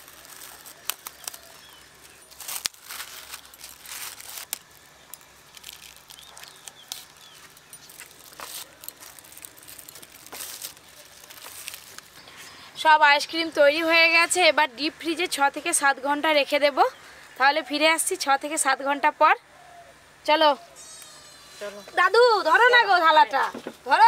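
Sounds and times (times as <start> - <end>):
plastic sheet crinkling: 0.0 - 12.2.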